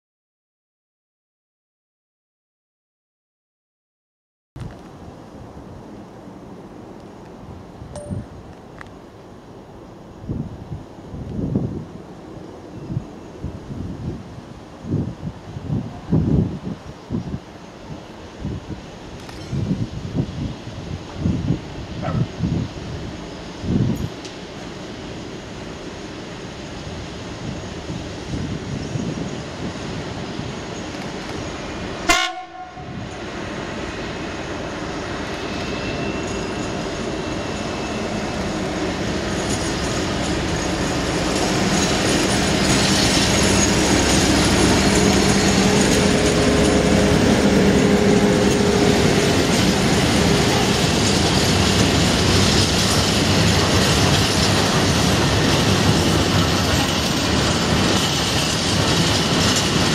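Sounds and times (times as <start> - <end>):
diesel locomotive engine: 4.6 - 59.9
freight wagons rattling: 49.4 - 59.9.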